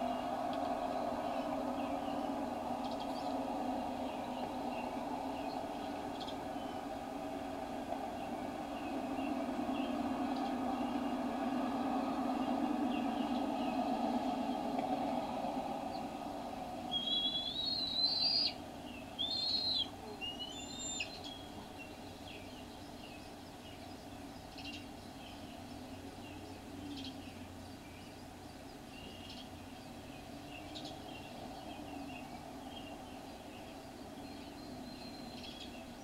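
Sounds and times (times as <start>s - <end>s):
high wavering whistled bird calls: 0.0s - 14.8s, 16.8s - 36.0s
steady low hum: 0.0s - 36.0s
faint bird chirps: 16.9s - 36.0s.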